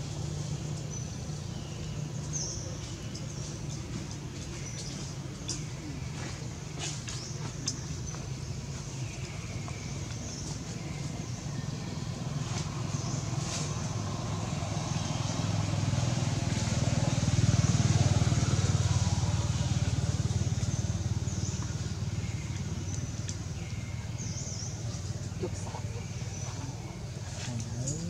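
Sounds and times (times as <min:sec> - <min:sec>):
vehicle engine passing: 0:09.4 - 0:28.0.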